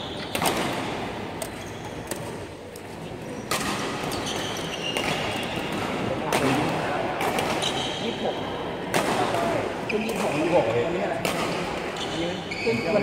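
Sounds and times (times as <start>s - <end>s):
shoes squeaking on court floor: 0.0s - 6.1s, 7.5s - 8.6s, 9.8s - 11.0s, 11.9s - 13.0s
rackets striking shuttlecocks: 0.2s - 8.0s, 8.8s - 11.9s.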